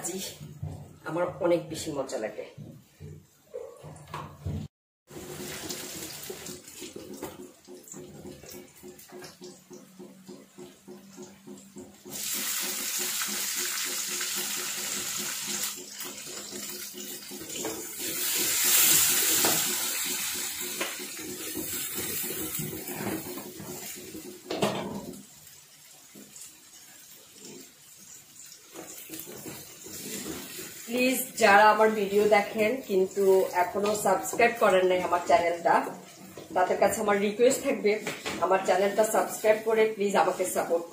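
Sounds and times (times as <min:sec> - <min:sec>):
onions sizzling in hot oil: 0:12.1 - 0:40.9
wooden spatula stirring: 0:28.7 - 0:40.8.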